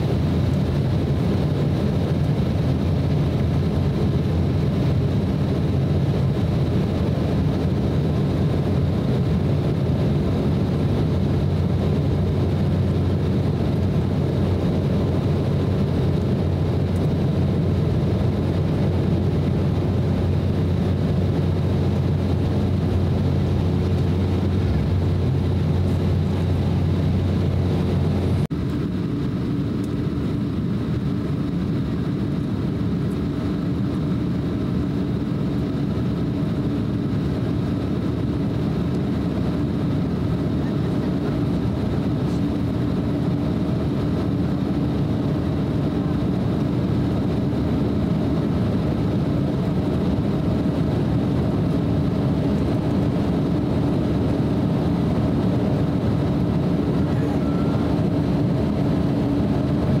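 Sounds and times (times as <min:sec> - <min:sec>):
air rushing over fuselage: 0:00.0 - 0:31.4
jet engine drone: 0:00.0 - 1:00.0
low steady hum: 0:00.0 - 1:00.0.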